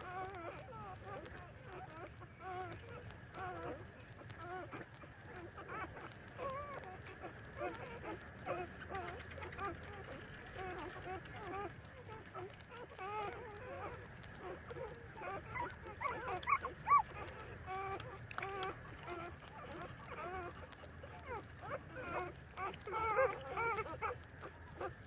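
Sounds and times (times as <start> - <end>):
puppies whining and squeaking: 0.0 - 25.0.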